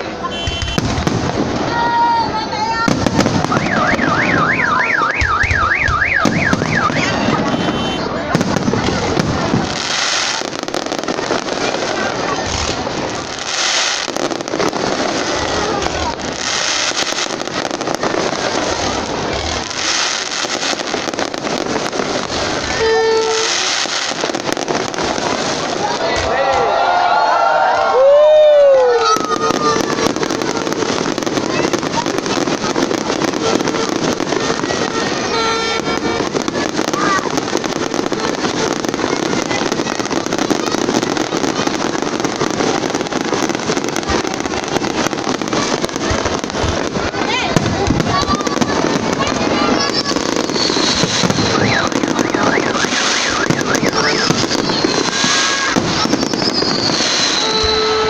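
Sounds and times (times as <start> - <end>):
fireworks bursting and crackling: 0.0 - 58.0
short horn toot: 7.0 - 8.1.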